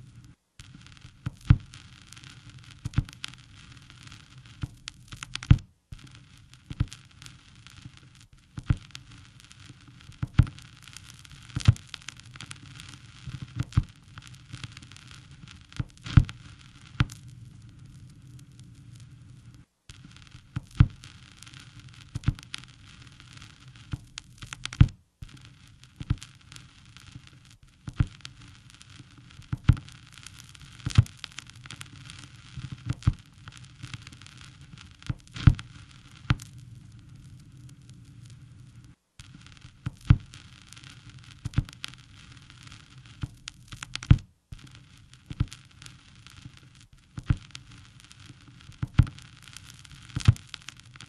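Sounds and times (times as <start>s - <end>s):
crackling hiss: 0.0s - 51.0s
sharp pops: 15.4s - 17.4s, 29.1s - 36.6s, 38.8s - 42.5s, 43.2s - 51.0s.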